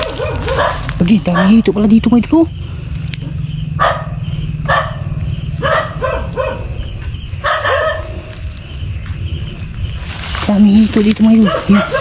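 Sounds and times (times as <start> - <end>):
dog barking: 0.0 - 1.6, 3.8 - 8.3, 11.4 - 12.0
insects trilling: 0.0 - 12.0.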